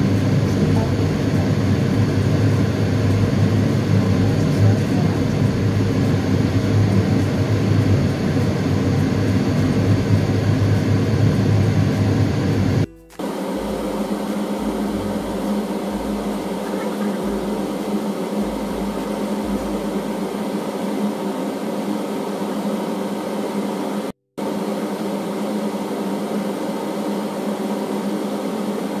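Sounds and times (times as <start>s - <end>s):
quieter hum: 0.0s - 22.1s
whirring drone: 0.0s - 29.0s.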